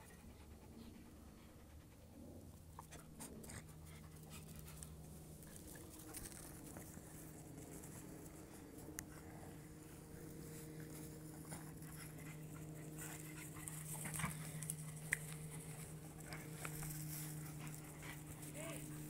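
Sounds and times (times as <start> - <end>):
steady low hum: 0.0 - 19.0
dogs scuffling on grass: 4.1 - 19.0.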